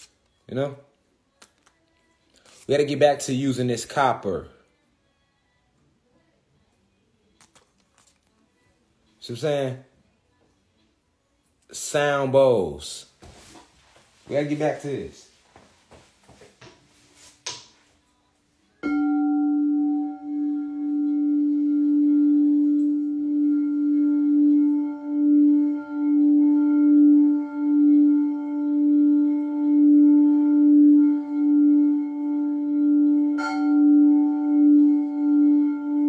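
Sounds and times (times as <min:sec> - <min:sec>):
singing bowl ringing: 0:18.8 - 0:28.2, 0:32.8 - 0:36.0.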